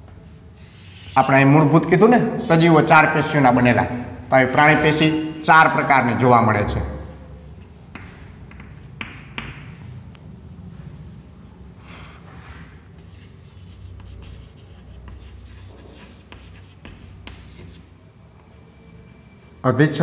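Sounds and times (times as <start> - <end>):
low background hum: 0.0 - 20.0
chalk tapping on a chalkboard: 7.5 - 9.8, 13.0 - 17.9.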